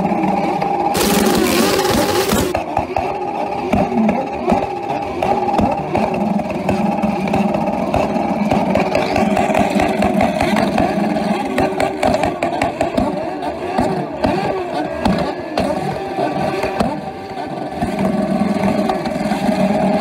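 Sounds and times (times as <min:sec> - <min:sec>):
motorcycle engines at rev limiter: 0:00.0 - 0:20.0
exhaust crackles and pops: 0:01.0 - 0:02.6.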